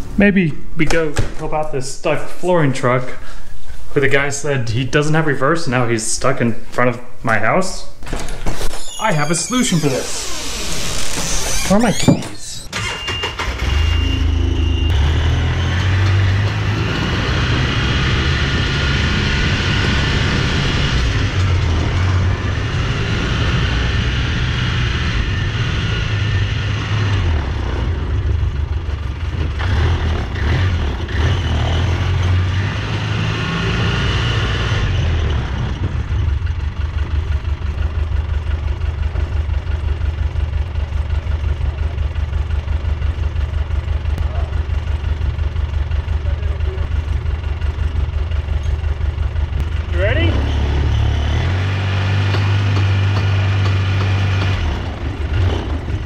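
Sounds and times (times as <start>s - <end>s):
utility vehicle engine revving: 8.9s - 36.6s, 44.0s - 56.0s.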